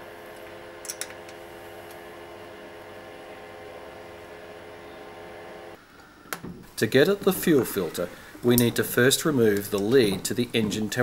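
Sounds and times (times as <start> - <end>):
spanner clicking on metal: 0.8 - 1.2.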